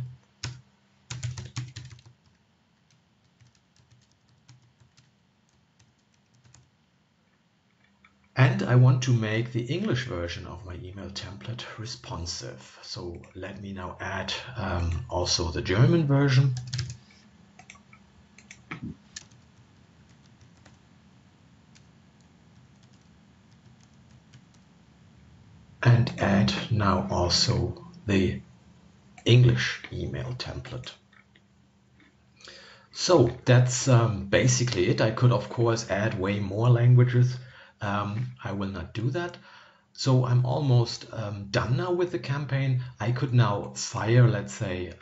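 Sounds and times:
computer keyboard typing: 0.4 - 6.7, 16.5 - 17.0, 17.6 - 20.8, 21.7 - 24.7.

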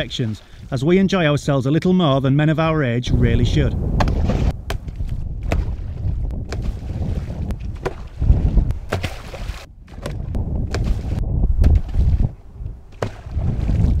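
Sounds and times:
wind rumbling on microphone: 2.8 - 14.0
decoys splashing into water: 5.4 - 12.3.

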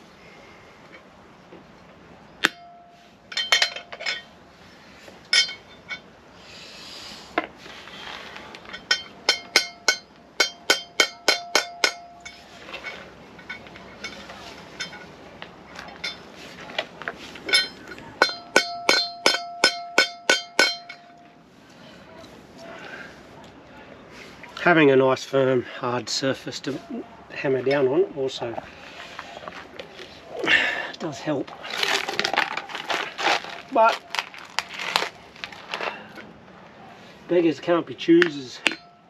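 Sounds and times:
hammer striking metal: 2.4 - 4.3, 8.8 - 12.4, 17.5 - 21.2, 38.2 - 39.0.

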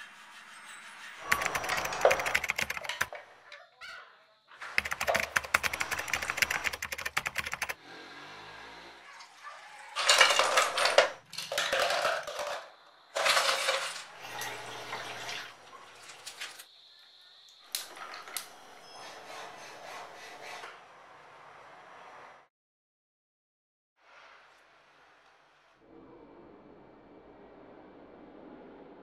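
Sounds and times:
glassware and utensils clinking: 10.0 - 15.5.

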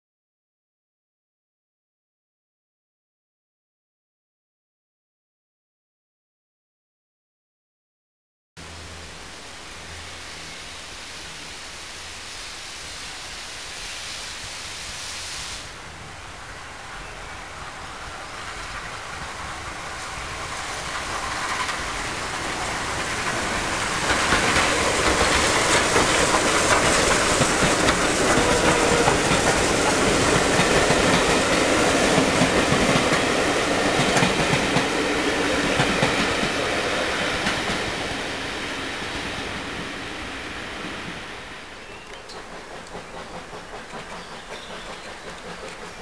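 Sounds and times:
steam locomotive and coaches passing: 8.6 - 46.0.

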